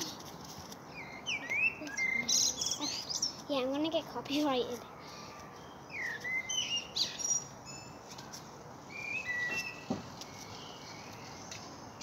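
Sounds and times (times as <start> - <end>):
songbirds chirping: 0.0 - 12.0
soft thump: 9.5 - 10.1.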